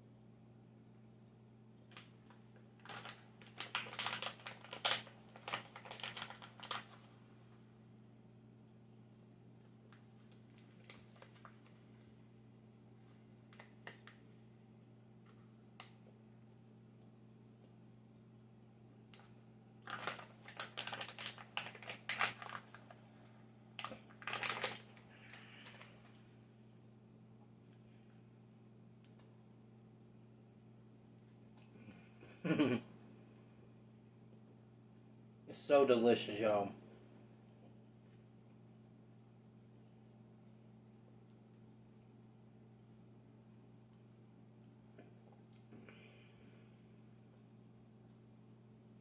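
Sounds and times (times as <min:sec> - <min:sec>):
plastic package crackling: 0:01.9 - 0:07.1, 0:09.9 - 0:12.0, 0:13.0 - 0:14.2, 0:19.1 - 0:26.2
plastic pouch crinkling: 0:01.9 - 0:07.2, 0:09.9 - 0:12.1, 0:13.0 - 0:14.3, 0:19.2 - 0:26.2.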